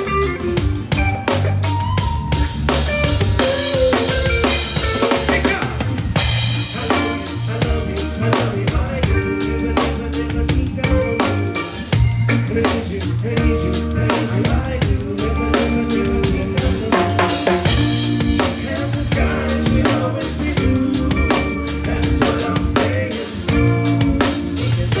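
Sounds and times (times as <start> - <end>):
drum kit hits: 0.0 - 9.2, 16.4 - 20.8
live rock band playing: 0.0 - 25.0.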